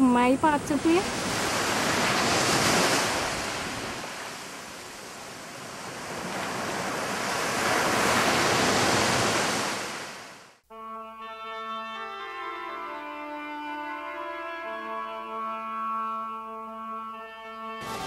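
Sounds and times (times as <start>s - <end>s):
ocean waves rushing: 0.4s - 10.6s
brass music: 10.6s - 18.0s.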